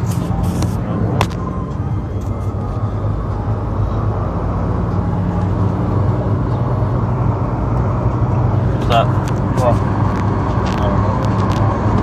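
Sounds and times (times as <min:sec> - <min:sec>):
car engine and road noise: 0:00.0 - 0:12.0.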